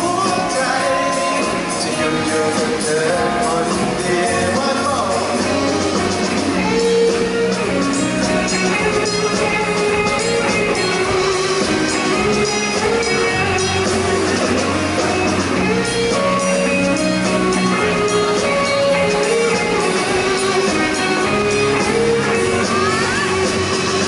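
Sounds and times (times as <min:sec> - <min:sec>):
electric guitar melody: 0:00.0 - 0:24.0
live rock band playing: 0:00.0 - 0:24.0.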